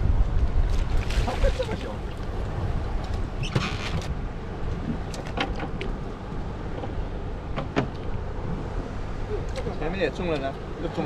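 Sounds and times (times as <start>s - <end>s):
boat engine rumble: 0.0s - 11.0s.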